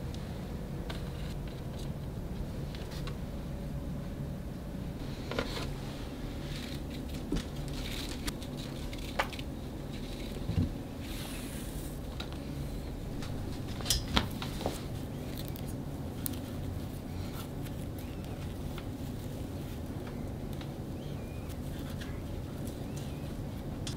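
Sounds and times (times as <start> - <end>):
low background noise: 0.0 - 23.9
hands handling twine: 5.2 - 23.9.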